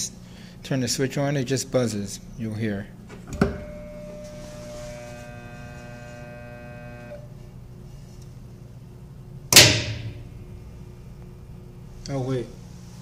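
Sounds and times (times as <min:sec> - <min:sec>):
dishwasher electrical hum: 0:00.0 - 0:13.0
loud clunk: 0:09.5 - 0:10.3.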